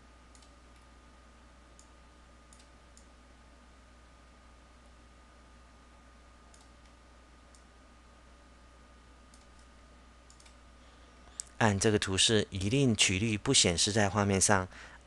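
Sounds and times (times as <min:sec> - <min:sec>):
steady hum: 0:00.0 - 0:15.0
computer mouse clicks: 0:00.3 - 0:00.9, 0:01.8 - 0:03.1, 0:06.5 - 0:07.7, 0:09.3 - 0:09.7, 0:10.3 - 0:10.6.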